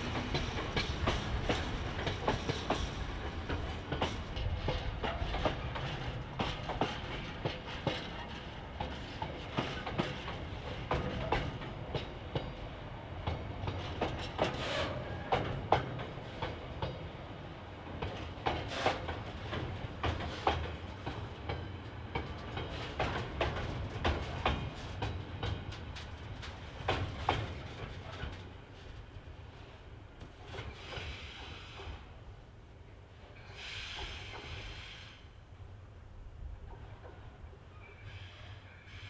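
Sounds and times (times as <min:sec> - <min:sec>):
wheels clicking over rail joints: 0:00.0 - 0:17.1, 0:17.9 - 0:29.3
freight train rumbling past: 0:00.0 - 0:39.0.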